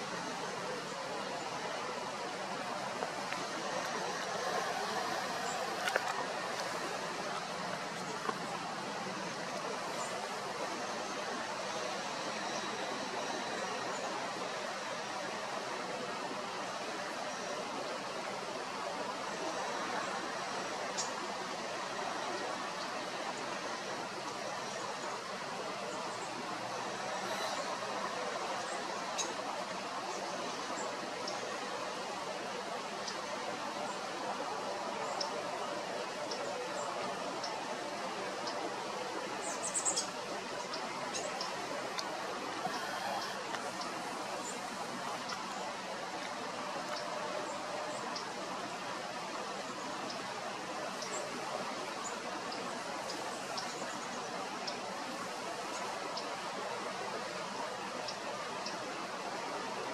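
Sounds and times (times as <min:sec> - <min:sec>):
outdoor background hiss: 0:00.0 - 0:59.9
small birds chipping: 0:34.7 - 0:56.4.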